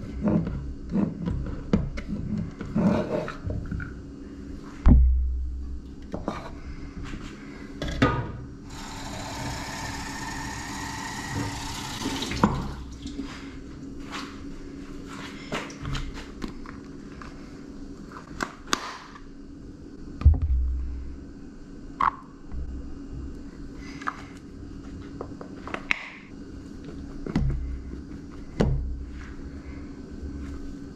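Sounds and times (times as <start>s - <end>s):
liquid pouring into jug: 8.7s - 13.3s
heavy thud: 20.2s - 21.0s.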